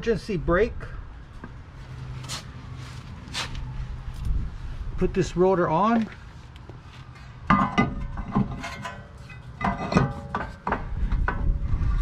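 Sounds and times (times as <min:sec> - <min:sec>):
metal brake rotor clanking: 0:07.5 - 0:11.5.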